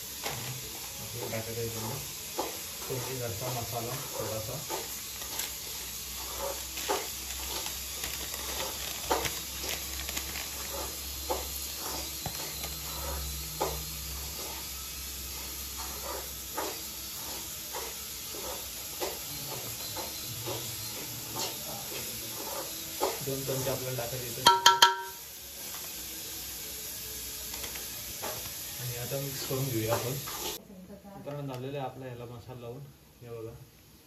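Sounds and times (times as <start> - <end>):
steady hiss: 0.0 - 30.8
spoon tapping a bowl: 24.4 - 25.2.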